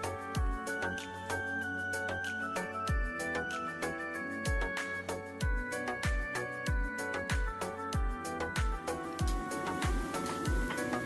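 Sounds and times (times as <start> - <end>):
deep kick drum beat: 5.4 - 11.0
held synth chords: 8.1 - 11.0.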